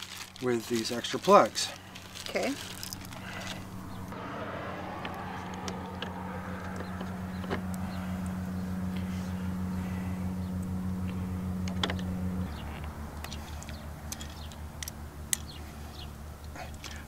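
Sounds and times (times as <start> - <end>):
low hum: 1.8 - 17.0
small metal parts clicking: 13.2 - 15.6.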